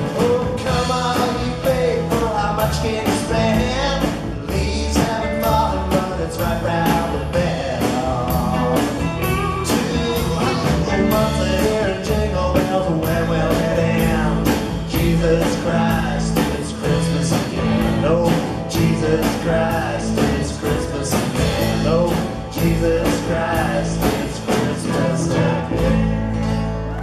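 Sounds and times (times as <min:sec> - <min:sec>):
drum kit beat: 0:00.0 - 0:26.2
voices singing: 0:00.0 - 0:26.4
electric guitar: 0:00.0 - 0:27.0
strummed acoustic guitars: 0:00.0 - 0:27.0.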